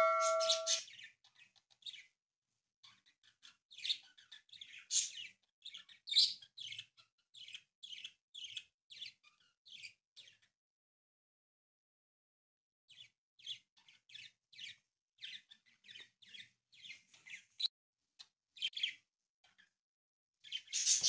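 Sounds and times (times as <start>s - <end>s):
ringing chime: 0.0s - 0.8s.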